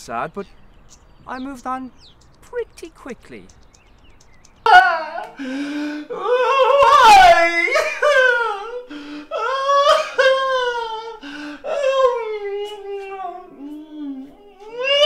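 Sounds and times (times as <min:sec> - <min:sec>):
man wailing and sobbing: 0:04.7 - 0:15.0.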